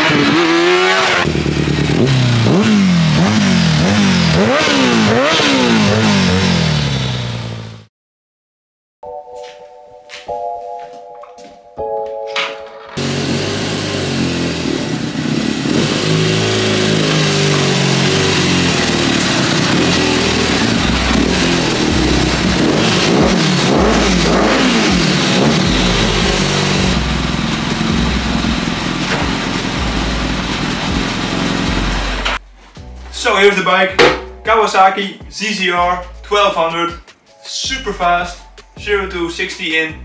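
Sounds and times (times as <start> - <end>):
motorcycle engine revving: 0.0 - 7.9, 13.0 - 32.4.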